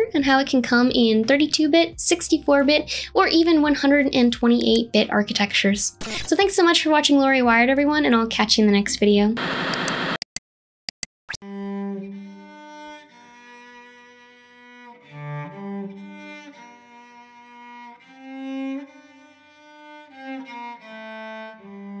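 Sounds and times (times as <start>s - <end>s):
cello bowed slow melody: 11.4s - 22.0s.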